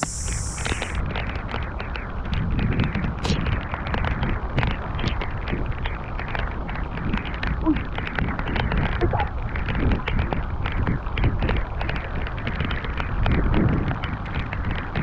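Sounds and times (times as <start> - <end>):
heavy rain on water: 3.5 - 15.0.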